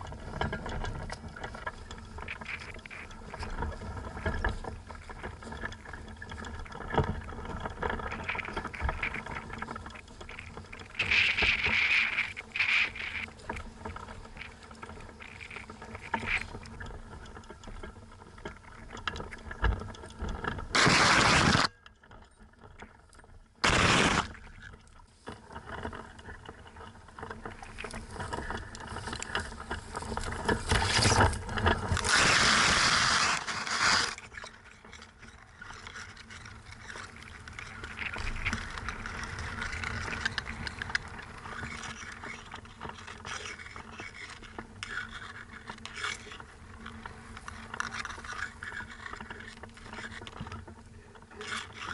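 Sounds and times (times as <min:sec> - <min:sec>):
grass and fabric rustling: 0:25.1 - 0:34.2.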